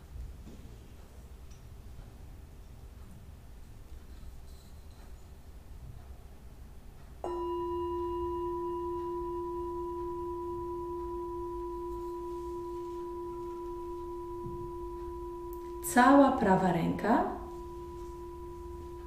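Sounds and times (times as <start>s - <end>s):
singing bowl struck and ringing: 7.2s - 19.0s.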